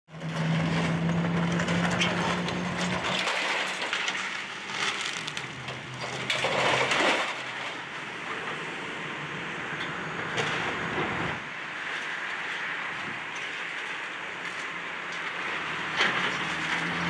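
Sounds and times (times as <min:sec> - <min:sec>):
excavator engine hum: 0:00.1 - 0:17.0
debris crunching and cracking: 0:00.2 - 0:08.5.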